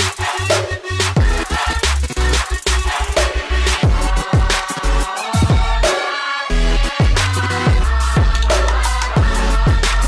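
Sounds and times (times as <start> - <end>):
electronic music with heavy beat: 0.0 - 10.0.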